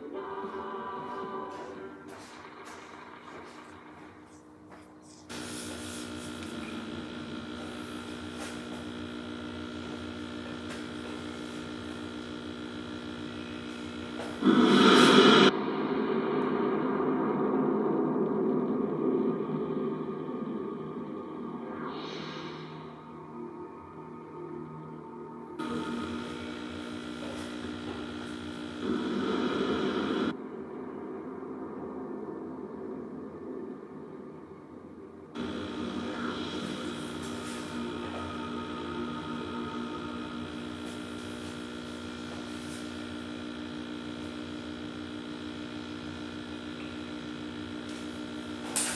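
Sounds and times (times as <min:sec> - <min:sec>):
television hiss and tones: 0:00.0 - 0:17.6, 0:25.6 - 0:31.0, 0:35.3 - 0:48.9
electrical hum and buzz: 0:02.1 - 0:15.5, 0:25.6 - 0:30.4, 0:35.4 - 0:48.9.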